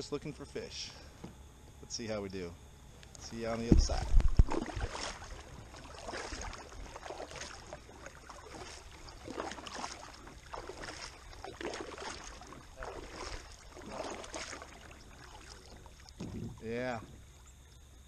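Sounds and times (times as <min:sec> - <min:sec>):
kayak paddle splashing in water: 0:03.7 - 0:17.9.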